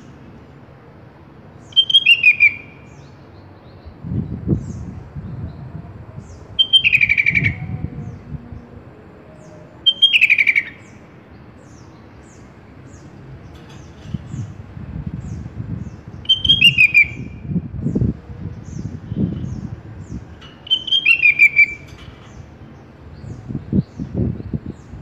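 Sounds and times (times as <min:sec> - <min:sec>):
bird singing: 0:01.6 - 0:25.0.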